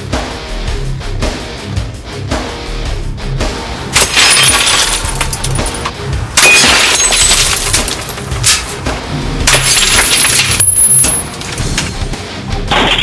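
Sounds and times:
rock music: 0.0s - 13.0s
glass shattering: 4.0s - 8.8s, 9.4s - 12.0s, 12.7s - 13.0s.

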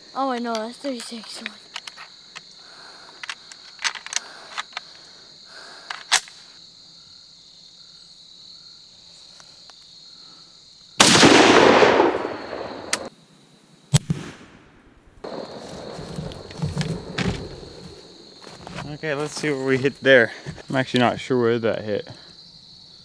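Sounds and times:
insect chirring: 0.0s - 14.0s, 15.2s - 23.0s
metallic clack of rifle handling: 0.4s - 2.4s, 3.2s - 4.9s
rifle shot with echo: 11.0s - 13.1s, 13.9s - 15.4s
sharp crack: 11.0s - 13.1s, 13.9s - 15.6s.

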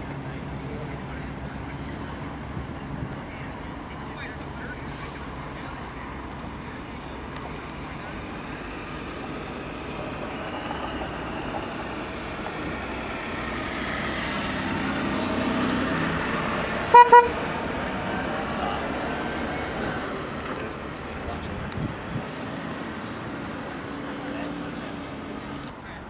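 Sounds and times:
vehicle engine rumble: 0.0s - 26.0s
vehicle horn toots: 16.9s - 17.4s.

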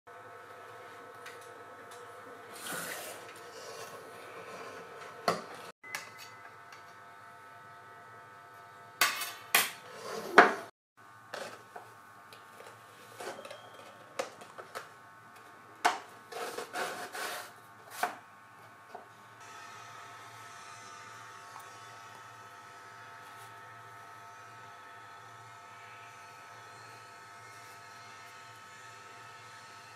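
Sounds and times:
rubbing and scraping on tabletop: 16.3s - 18.1s.

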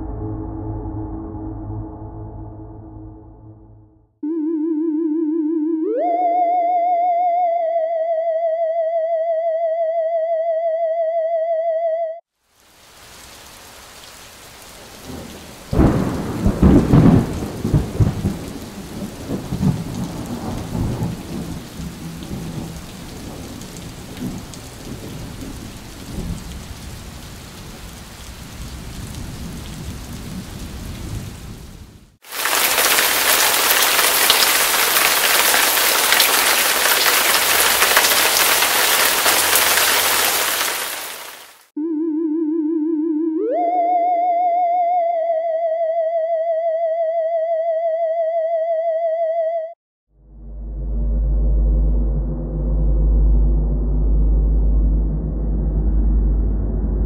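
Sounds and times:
heavy rain: 12.4s - 41.7s
thunderclap rumbling: 14.7s - 41.4s.

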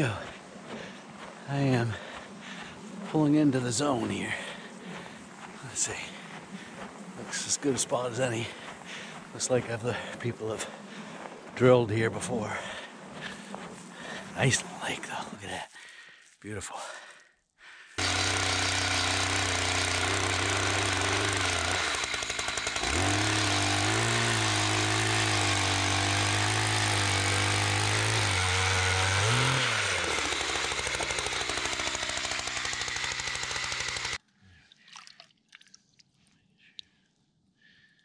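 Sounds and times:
ice auger engine running: 18.0s - 34.2s.

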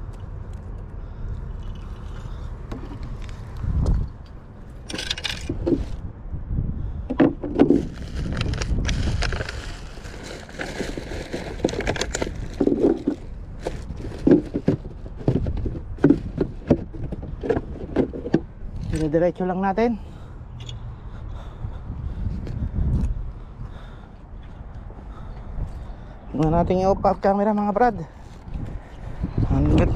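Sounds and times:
steady low rumble: 0.0s - 29.9s
camera handling rustling and scraping: 2.0s - 6.0s, 7.4s - 9.8s, 10.5s - 19.1s.

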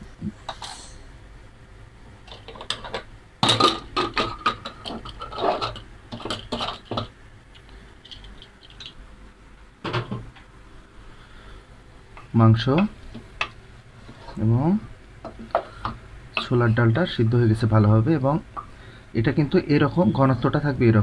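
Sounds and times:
metal lid clanking and scraping: 2.3s - 7.1s.

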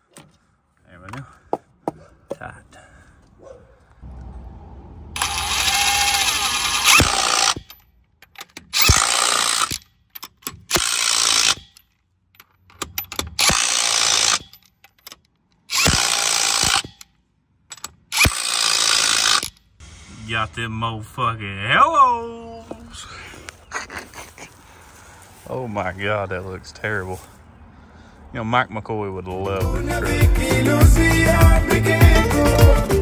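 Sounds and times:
impact wrench hammering: 5.2s - 11.8s, 12.4s - 15.1s, 15.7s - 17.1s, 17.7s - 19.6s.

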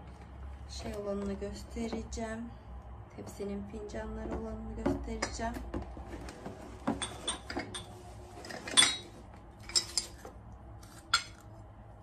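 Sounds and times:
porcelain cup and saucer clinking: 8.7s - 10.2s.

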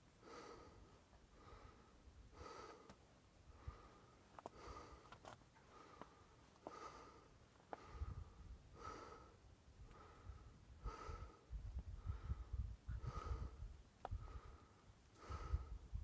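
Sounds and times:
wind gusts on microphone: 10.2s - 14.5s, 15.3s - 16.0s.

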